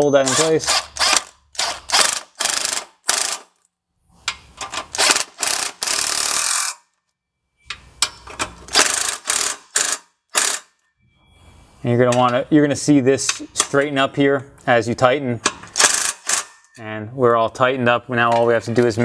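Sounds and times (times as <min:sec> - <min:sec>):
impact driver rattling: 0:00.2 - 0:03.5, 0:04.6 - 0:06.8, 0:08.3 - 0:10.7, 0:15.6 - 0:16.6.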